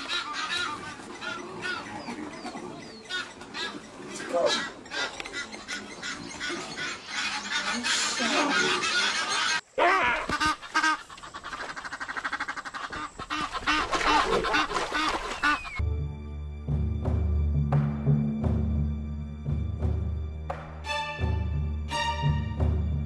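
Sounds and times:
geese honking: 0:00.0 - 0:02.3, 0:03.0 - 0:15.8.

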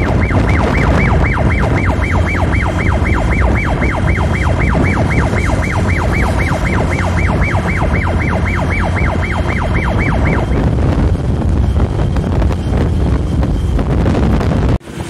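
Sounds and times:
electronic siren yelping: 0:00.0 - 0:11.6
wind and road rumble: 0:00.0 - 0:15.0.

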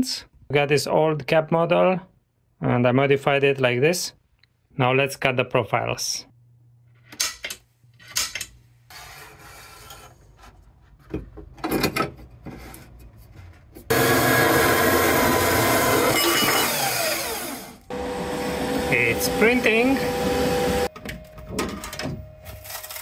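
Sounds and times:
power saw cutting metal: 0:13.9 - 0:20.9.

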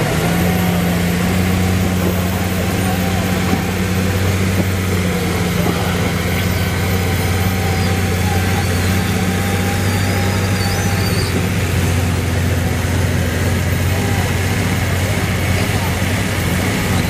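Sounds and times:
tractor diesel engine under load: 0:00.0 - 0:17.0.

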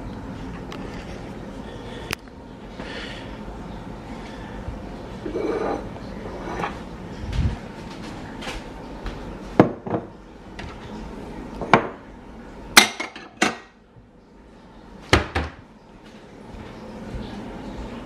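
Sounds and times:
dishes and utensils clattering: 0:05.2 - 0:06.8, 0:12.8 - 0:13.8.

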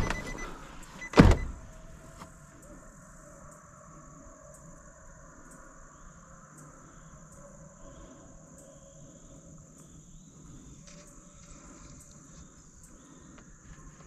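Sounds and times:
insect drone: 0:00.0 - 0:14.0
faint ticks: 0:10.7 - 0:13.8.

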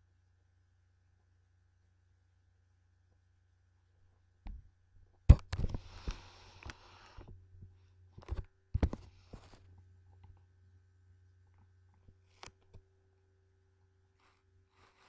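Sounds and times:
faint electrical hum: 0:00.0 - 0:15.0
rustling: 0:14.2 - 0:15.0.

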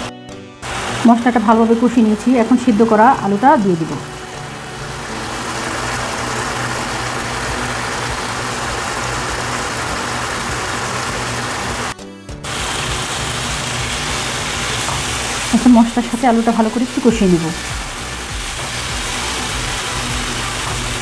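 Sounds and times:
masala sizzling in a pan: 0:00.6 - 0:21.0.

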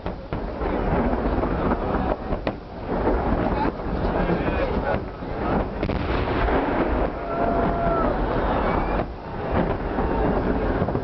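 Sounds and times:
fireworks booming: 0:00.0 - 0:11.0.

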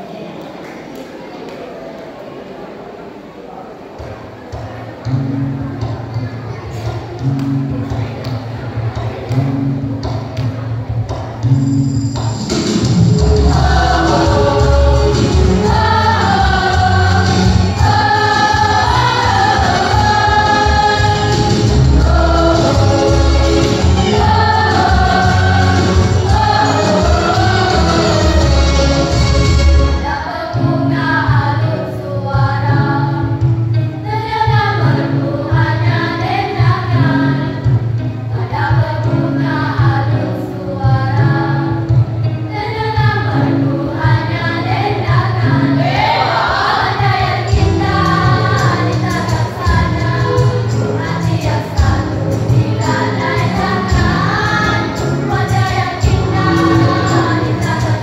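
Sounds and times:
choir singing: 0:12.5 - 0:33.4, 0:34.0 - 0:37.7, 0:42.5 - 0:58.0.

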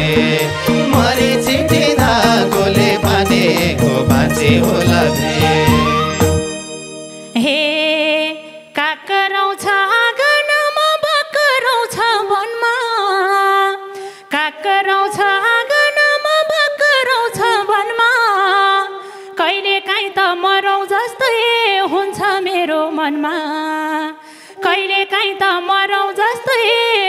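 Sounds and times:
woman singing folk song: 0:00.0 - 0:06.2, 0:07.4 - 0:27.0
singer breathing: 0:13.9 - 0:14.4, 0:19.0 - 0:19.4, 0:24.2 - 0:24.6.

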